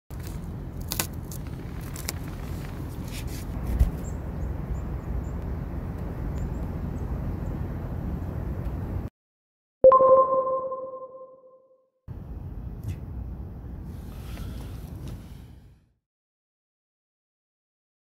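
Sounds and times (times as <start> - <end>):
rice crackers snapping: 0.2 - 1.4
electronic logo chime: 9.8 - 11.6.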